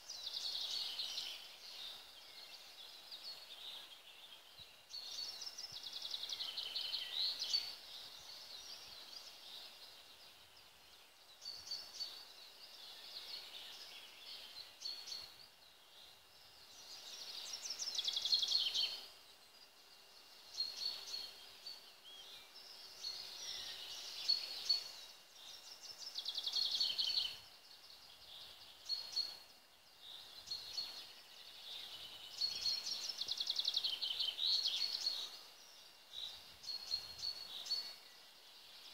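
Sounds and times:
faint steady hiss: 0.0 - 38.9
songbirds trilling: 0.0 - 38.9.

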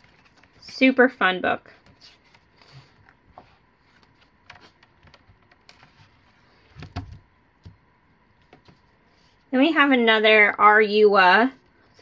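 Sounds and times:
pages turning: 0.0 - 0.8, 1.8 - 7.2.

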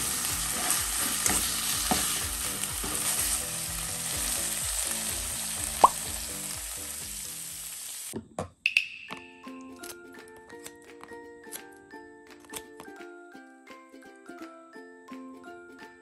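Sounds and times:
vegetables sizzling in frying pan: 0.0 - 8.2
spatula stirring: 0.3 - 3.4
sharp clink: 8.7 - 9.4.

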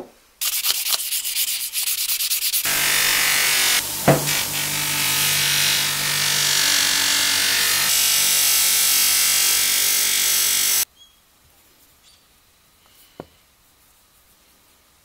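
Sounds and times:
metal polishing hiss: 0.4 - 10.8
bench grinder running: 2.6 - 10.8.

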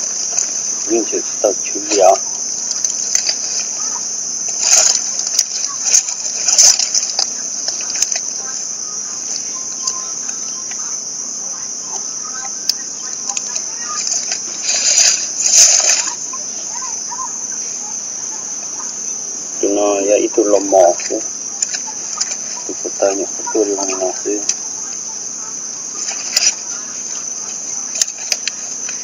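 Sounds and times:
insect chorus drone: 0.0 - 29.0
brief rustles: 2.7 - 8.5, 13.3 - 16.3.

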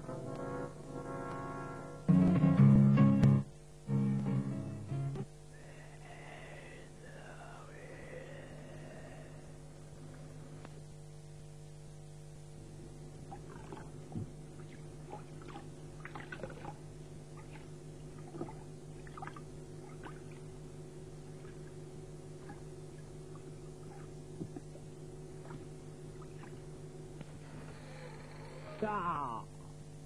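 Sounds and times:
low electrical hum: 0.0 - 30.0
water splashing and dripping: 14.6 - 16.8, 17.4 - 20.5.

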